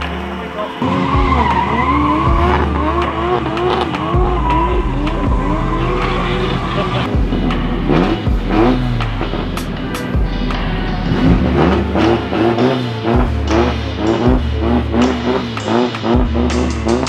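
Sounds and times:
tyres squealing: 0:00.0 - 0:07.2
car engine at high revs: 0:00.0 - 0:17.0.

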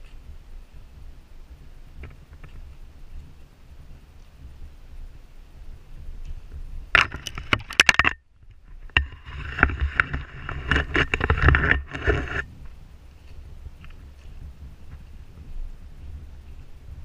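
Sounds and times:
trekking poles clicking on rock: 0:06.1 - 0:15.4
footsteps on rocky dirt trail: 0:08.6 - 0:17.0.

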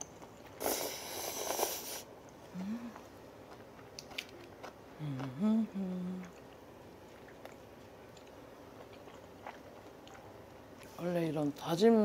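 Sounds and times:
faint chewing: 0:00.0 - 0:11.0
woman humming while eating: 0:02.5 - 0:03.1, 0:05.0 - 0:06.4.

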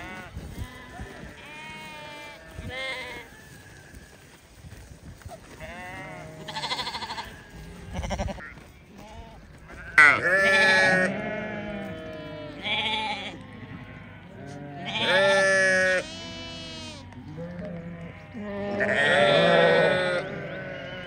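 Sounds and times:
sheep bleating: 0:00.0 - 0:04.2, 0:05.5 - 0:21.0.

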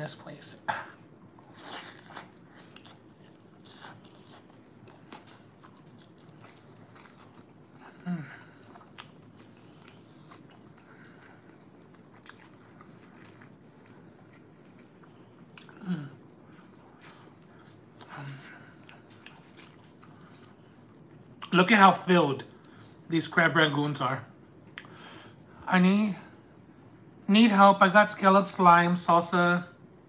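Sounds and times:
crunchy chewing: 0:01.2 - 0:21.5.

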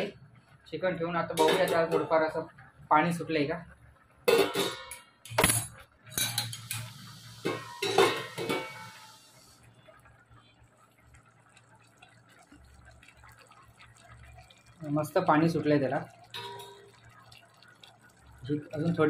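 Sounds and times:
metal pot lid clinking: 0:01.4 - 0:02.2, 0:04.3 - 0:09.1, 0:16.3 - 0:17.0.

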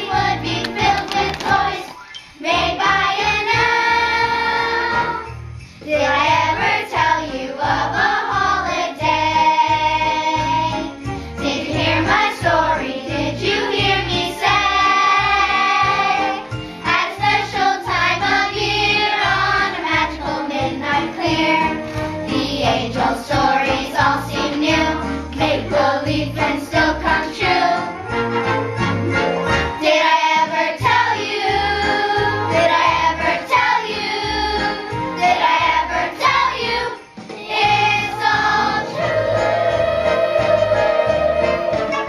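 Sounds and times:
children's choir singing: 0:00.0 - 0:28.0, 0:29.8 - 0:42.0.

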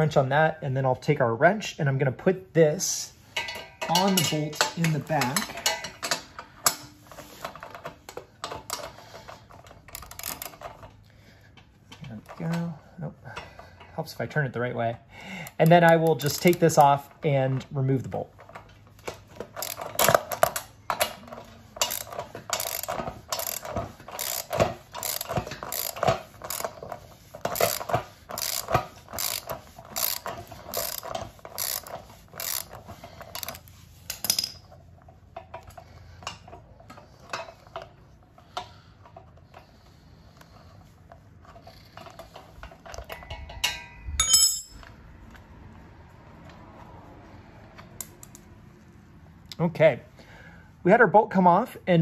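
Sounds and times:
socket wrench ratchet clicking: 0:19.6 - 0:21.2, 0:21.8 - 0:26.8, 0:27.5 - 0:34.6.

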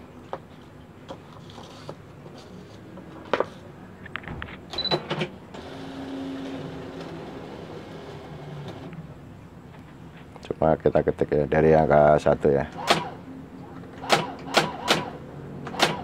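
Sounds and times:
typewriter motor whirring: 0:14.0 - 0:16.0
typewriter clicks: 0:15.7 - 0:16.0.

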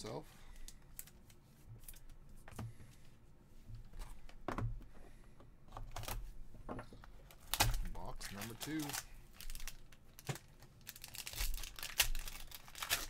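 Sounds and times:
hands handling cards and boxes: 0:06.9 - 0:13.0.

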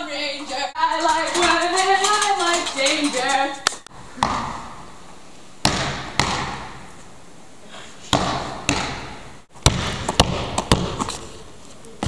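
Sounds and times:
basketball bouncing on hardwood floor: 0:04.2 - 0:04.8, 0:05.6 - 0:06.8, 0:08.1 - 0:11.1.

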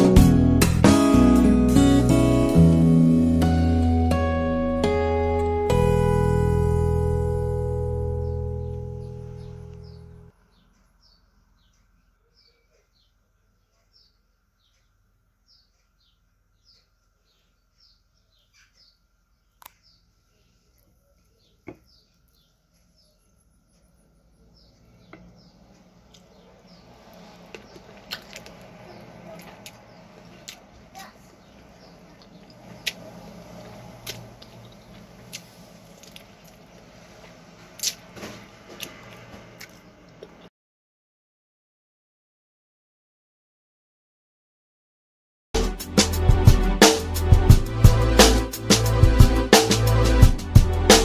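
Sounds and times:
bird chirping: 0:08.0 - 0:36.9
wet mouth eating sounds: 0:27.1 - 0:30.8, 0:32.0 - 0:38.1
sharp lip smacks: 0:32.2 - 0:33.1, 0:37.8 - 0:38.0.

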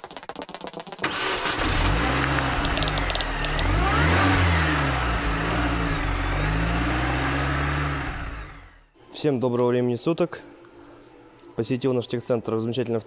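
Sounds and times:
car engine revving: 0:01.1 - 0:08.9.

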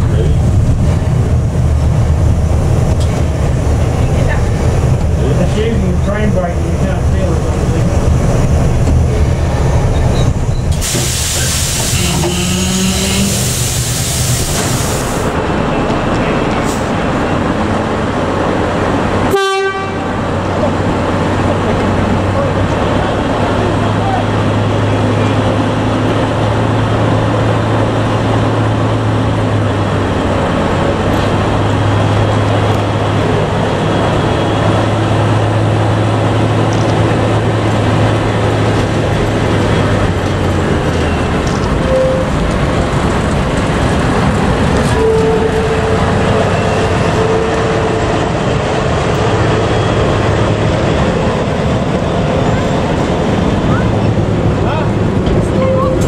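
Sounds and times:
diesel locomotive engine drone: 0:00.0 - 0:56.0
carriages rolling past: 0:20.2 - 0:56.0.

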